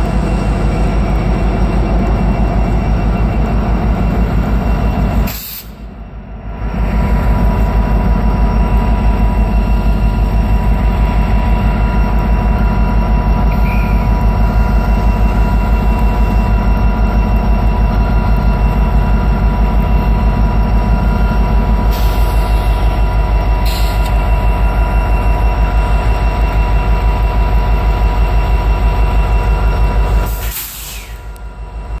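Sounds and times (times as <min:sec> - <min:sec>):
locomotive diesel engines throbbing: 0:00.0 - 0:32.0
hiss: 0:05.3 - 0:05.8, 0:30.3 - 0:31.3.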